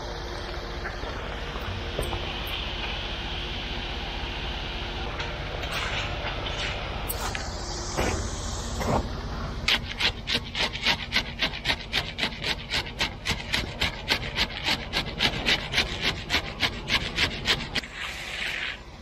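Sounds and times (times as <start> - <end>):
trowel scraping wet concrete: 9.6 - 18.8.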